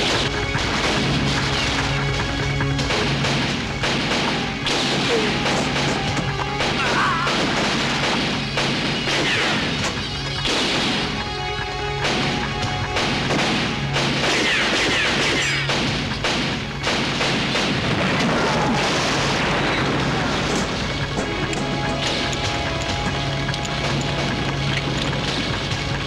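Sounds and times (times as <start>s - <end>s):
gunshots: 0.0s - 26.0s
music score with low drone: 0.0s - 26.0s
crashes: 12.0s - 26.0s.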